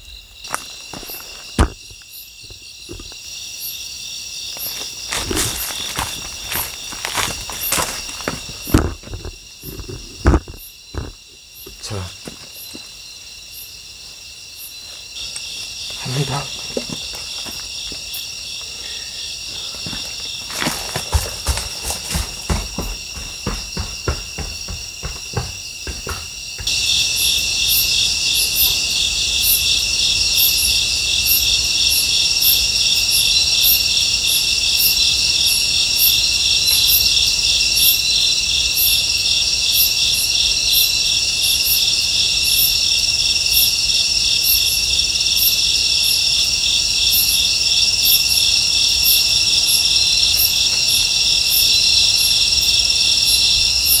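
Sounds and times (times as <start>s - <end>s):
crickets trilling: 0.0s - 54.0s
soft knocks: 21.0s - 26.7s.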